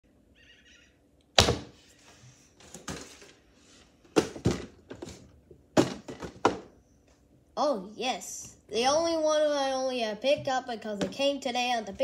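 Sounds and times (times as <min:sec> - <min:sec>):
objects knocking on wooden table: 0:05.8 - 0:06.7.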